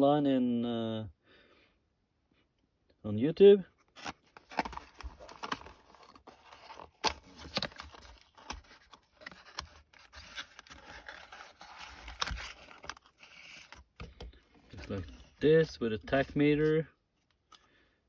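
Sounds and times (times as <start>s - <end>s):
cardboard box rustling: 3.8s - 15.4s.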